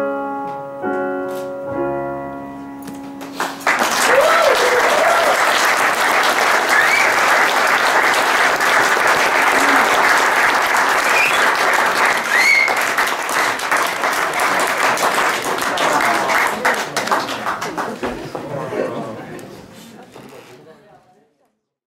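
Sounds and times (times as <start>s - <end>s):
people applauding: 3.2s - 19.2s, 20.2s - 20.5s.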